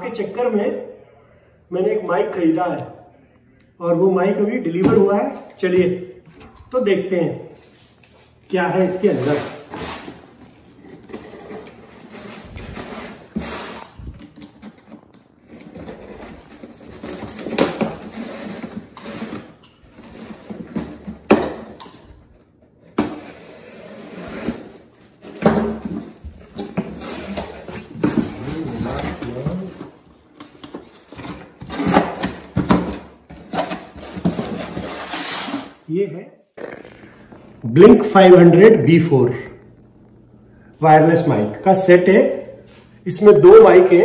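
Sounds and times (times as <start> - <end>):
box cutter scraping cardboard: 9.0 - 10.2, 10.8 - 14.0, 15.4 - 21.1, 22.8 - 29.9, 30.6 - 35.8
cardboard and tape tearing: 9.0 - 21.9, 22.8 - 35.8.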